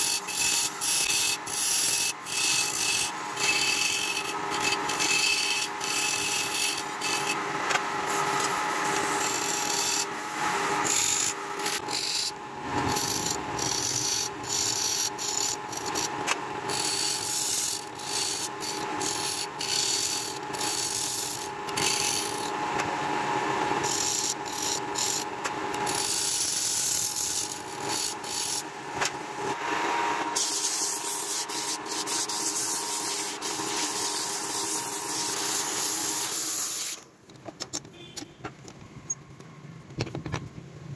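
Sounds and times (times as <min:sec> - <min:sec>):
chisel scraping wood: 0:00.0 - 0:07.4, 0:08.1 - 0:10.1, 0:10.8 - 0:16.1, 0:16.7 - 0:22.4
lathe motor hum: 0:00.3 - 0:28.6.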